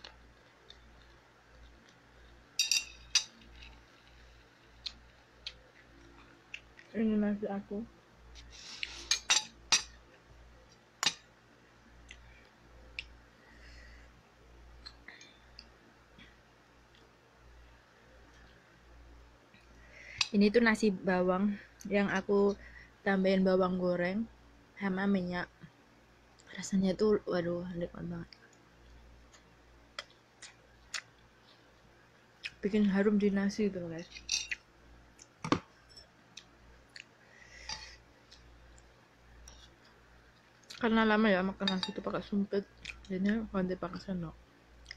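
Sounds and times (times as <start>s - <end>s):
metal spoon clinking on bowl: 2.6s - 3.4s, 34.2s - 34.6s, 41.6s - 42.1s.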